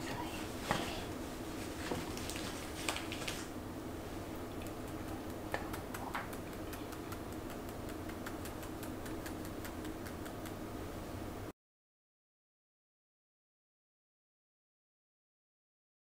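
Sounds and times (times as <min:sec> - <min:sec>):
faint steady hum: 0:00.0 - 0:11.5.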